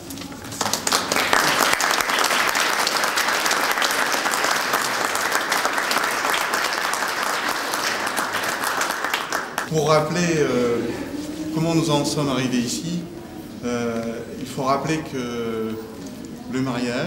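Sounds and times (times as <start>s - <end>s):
people clapping: 0.0s - 9.7s.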